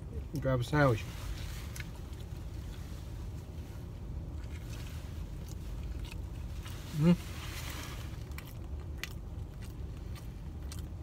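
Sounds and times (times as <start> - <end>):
person chewing: 4.3 - 11.0.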